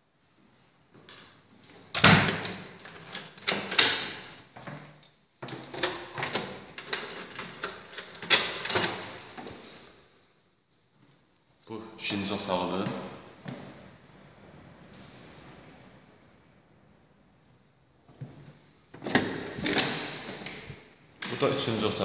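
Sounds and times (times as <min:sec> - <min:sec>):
door opening: 0:05.6 - 0:09.5.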